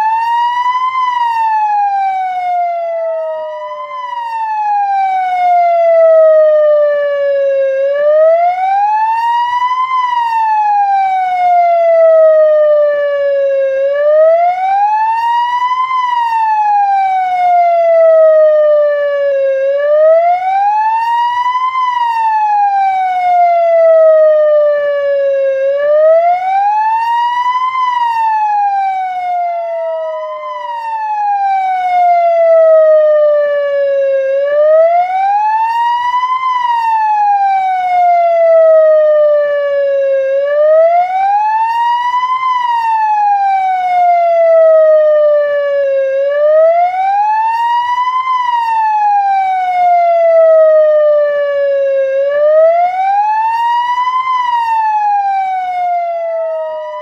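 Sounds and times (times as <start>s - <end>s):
police siren wailing: 0.0s - 57.0s.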